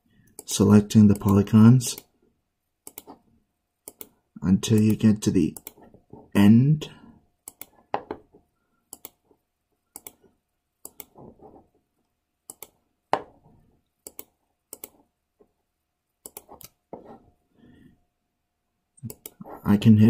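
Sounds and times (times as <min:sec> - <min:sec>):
computer mouse clicking: 0:01.1 - 0:02.1, 0:02.8 - 0:03.2, 0:03.8 - 0:05.0, 0:05.6 - 0:05.8, 0:07.4 - 0:08.2, 0:08.9 - 0:09.2, 0:09.9 - 0:11.2, 0:12.5 - 0:13.3, 0:14.0 - 0:15.0, 0:16.2 - 0:16.8, 0:19.0 - 0:19.5.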